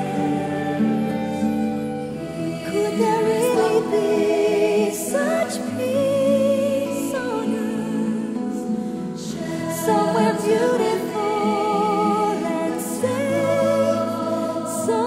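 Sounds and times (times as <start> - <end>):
choir singing held notes: 0.0 - 15.0.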